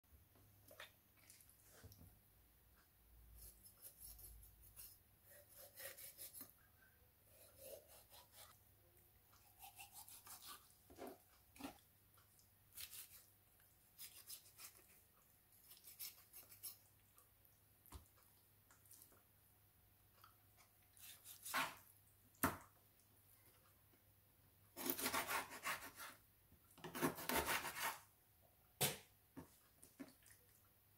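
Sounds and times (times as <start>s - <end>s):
knife cutting raw chicken: 3.4s - 6.6s, 7.3s - 8.6s, 9.4s - 11.8s, 13.9s - 15.0s, 21.0s - 22.6s, 24.8s - 26.2s, 26.8s - 28.0s.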